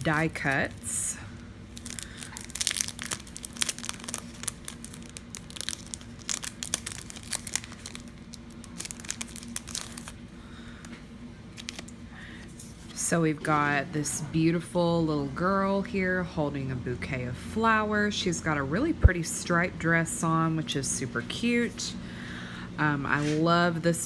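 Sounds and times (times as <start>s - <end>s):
plastic sleeve crinkling: 0.0s - 1.0s, 1.6s - 12.0s.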